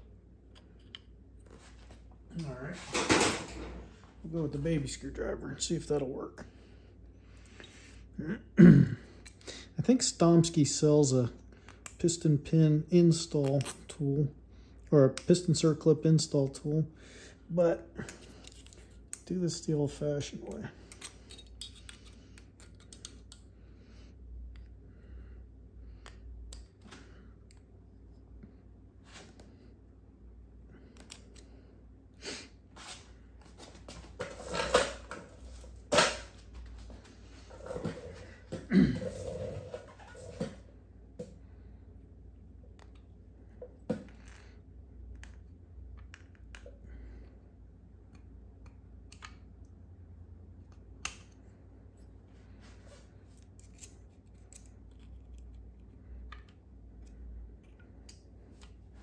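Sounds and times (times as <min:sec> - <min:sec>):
screwdriver clicking and scraping metal: 0:20.9 - 0:23.4.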